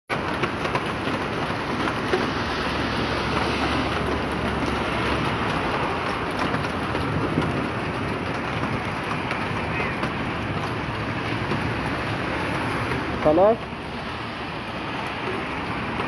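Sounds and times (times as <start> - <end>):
heavy rain and hail falling: 0.1 - 16.0.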